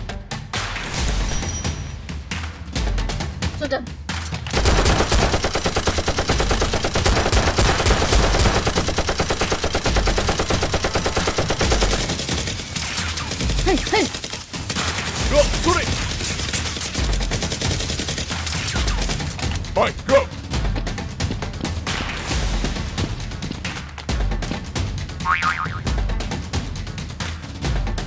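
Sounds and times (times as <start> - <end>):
rapid automatic gunfire: 4.6 - 19.4.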